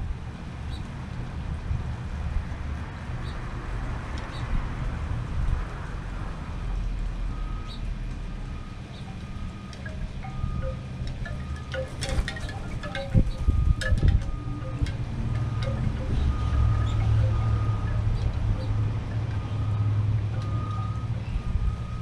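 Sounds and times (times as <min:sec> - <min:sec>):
wind rumble on microphone: 0:00.0 - 0:22.0
wind chimes tinkling: 0:09.1 - 0:22.0.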